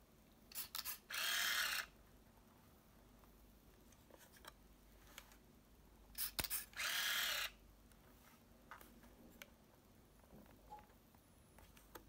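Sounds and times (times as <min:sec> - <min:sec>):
camera motor whirring: 0:00.7 - 0:01.9, 0:06.7 - 0:07.6.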